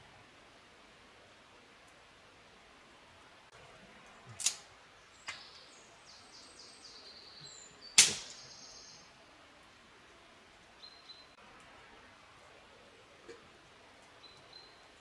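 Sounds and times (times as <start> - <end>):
wood fire crackling: 0.0 - 6.0, 7.9 - 15.0
small bird singing: 4.0 - 9.2, 10.8 - 11.4, 14.1 - 15.0
fire popping: 8.0 - 8.5.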